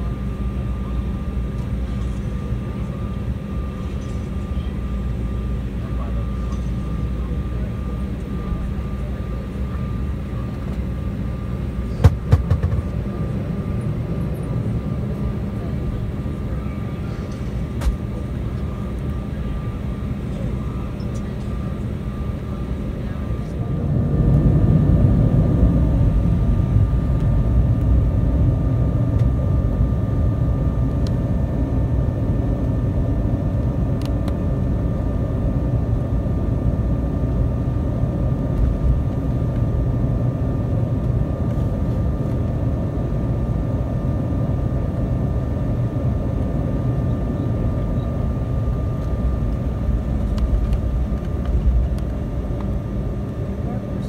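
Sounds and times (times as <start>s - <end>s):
aircraft cabin rumble: 0.0s - 54.0s
jet engines humming: 0.0s - 54.0s
thin steady whining tones: 12.6s - 54.0s.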